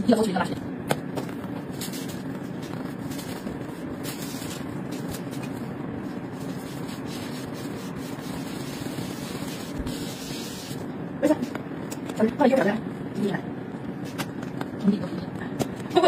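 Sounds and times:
steady background noise: 0:00.0 - 0:16.0
cake scraper rubbing cream: 0:01.6 - 0:11.5.

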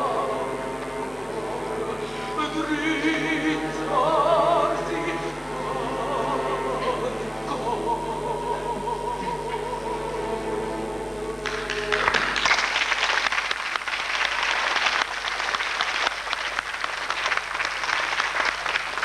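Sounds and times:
audience applause: 0:11.4 - 0:19.0.

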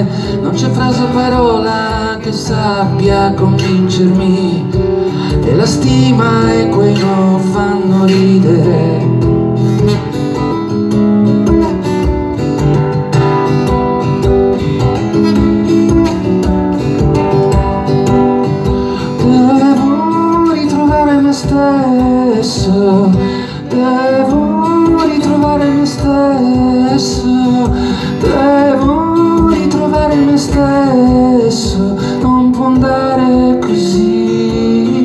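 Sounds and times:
man singing: 0:00.0 - 0:09.5, 0:18.6 - 0:35.0
acoustic guitar strumming: 0:00.0 - 0:35.0.

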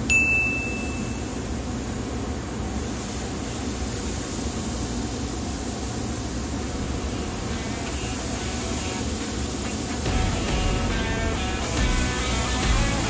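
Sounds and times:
meat sizzling on a grill: 0:06.8 - 0:13.0.

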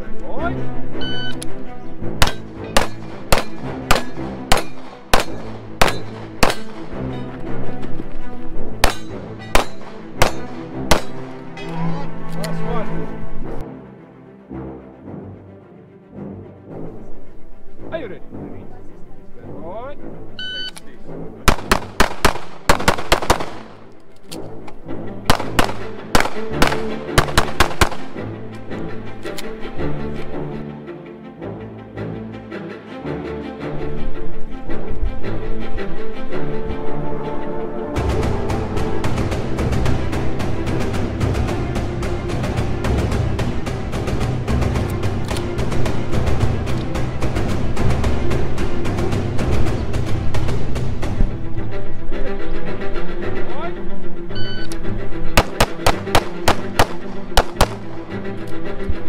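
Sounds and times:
background music: 0:00.0 - 0:59.0
pistol shots: 0:02.2 - 0:06.9, 0:08.8 - 0:11.3, 0:21.5 - 0:23.8, 0:25.3 - 0:28.2, 0:55.4 - 0:57.9.

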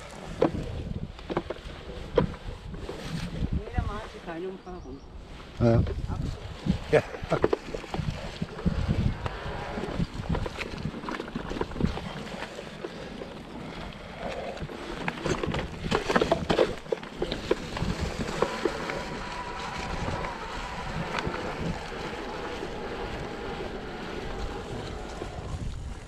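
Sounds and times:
bike rattling: 0:00.0 - 0:04.6, 0:05.3 - 0:26.0
bike tyres rolling on dirt: 0:00.0 - 0:26.0
wind on microphone: 0:00.0 - 0:26.0.

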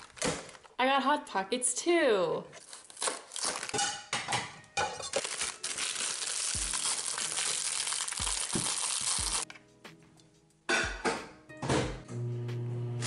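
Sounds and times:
plastic wrapper crinkling: 0:00.0 - 0:00.8, 0:02.6 - 0:04.1, 0:04.8 - 0:09.5.

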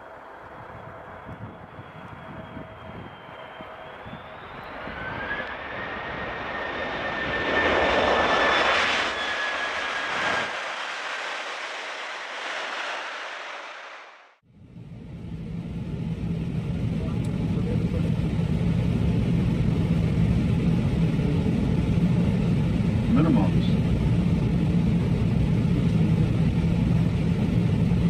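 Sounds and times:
jet engines spooling up: 0:00.0 - 0:14.4
rising engine whine: 0:00.0 - 0:28.0.

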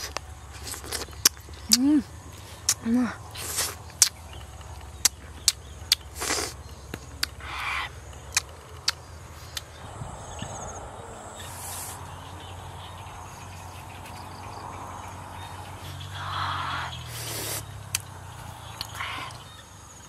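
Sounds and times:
wet chewing and mouth smacks: 0:00.0 - 0:02.8, 0:03.4 - 0:07.4, 0:08.1 - 0:09.8
outdoor background hiss: 0:00.0 - 0:20.0.

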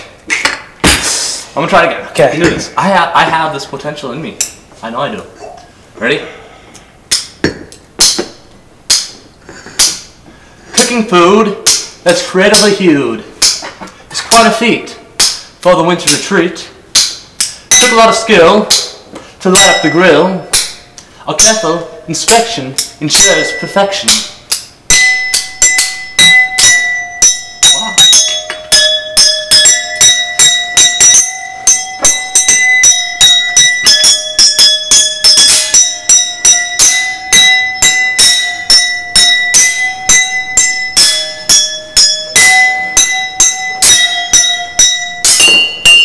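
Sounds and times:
spoons striking water glasses: 0:17.0 - 0:46.0.

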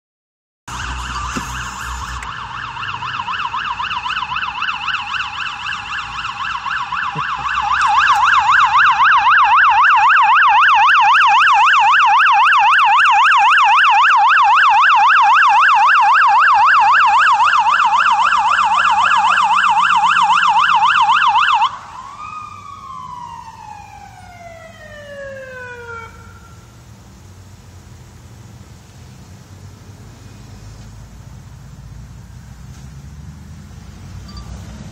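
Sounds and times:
motorcycle siren yelping: 0:00.7 - 0:26.7.

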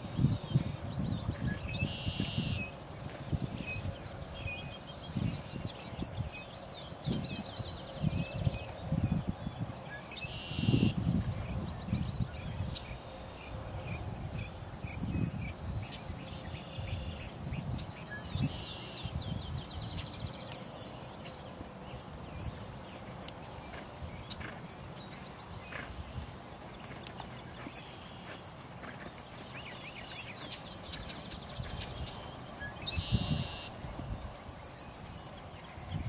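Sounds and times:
bird chirps: 0:00.4 - 0:02.8, 0:09.7 - 0:11.2, 0:27.0 - 0:36.0.

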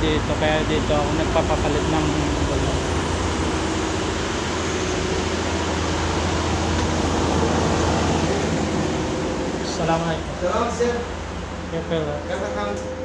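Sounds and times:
low machine hum: 0:00.0 - 0:13.0
machine rushing noise: 0:00.0 - 0:13.0.

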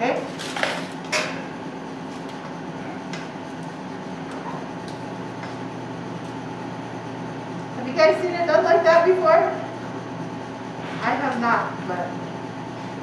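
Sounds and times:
kitchen equipment hum: 0:00.0 - 0:13.0.

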